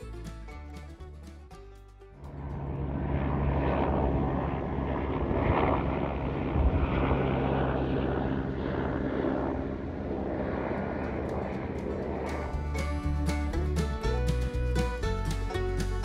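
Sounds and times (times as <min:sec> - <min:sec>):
helicopter rotor and engine: 0:02.3 - 0:13.1.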